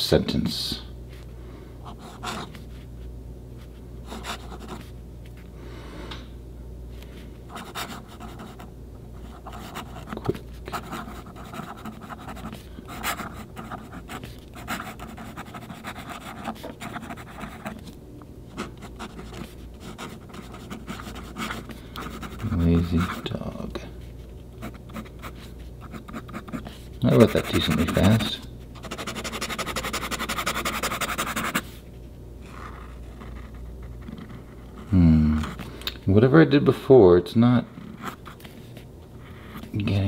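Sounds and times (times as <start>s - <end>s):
pen nib scratching on paper: 9.3s - 17.8s, 18.5s - 23.3s, 24.6s - 31.7s.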